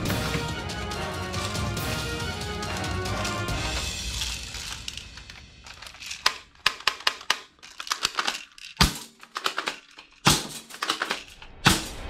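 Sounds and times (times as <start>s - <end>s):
plastic toy guns clacking: 2.4s - 11.9s.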